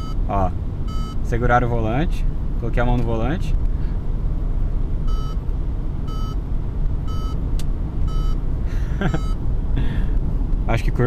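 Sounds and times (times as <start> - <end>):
warning chime beeping: 0.0 - 0.3, 0.9 - 1.3, 6.1 - 6.4, 7.1 - 7.4, 8.1 - 8.4, 9.1 - 9.4
engine and tyre noise: 0.0 - 11.0.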